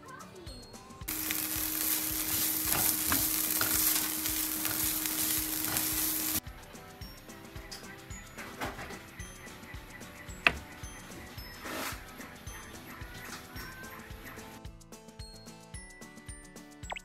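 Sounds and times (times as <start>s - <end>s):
food sizzling in a frying pan: 1.1s - 6.4s.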